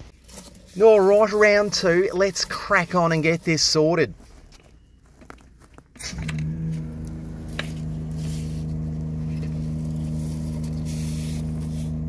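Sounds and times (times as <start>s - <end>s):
drain jetter engine running: 6.2s - 12.0s.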